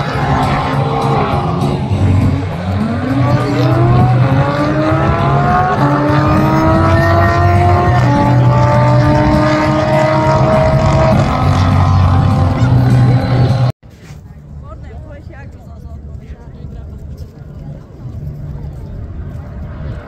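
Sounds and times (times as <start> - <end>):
car engine accelerating: 0.0 - 13.8.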